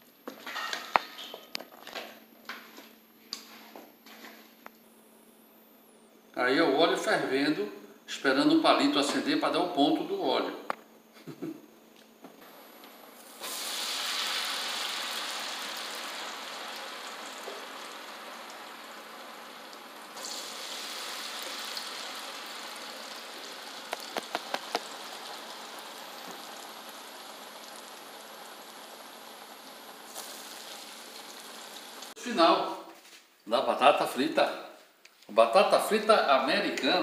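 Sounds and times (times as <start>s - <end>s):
potato strips sizzling in oil: 12.5s - 32.2s.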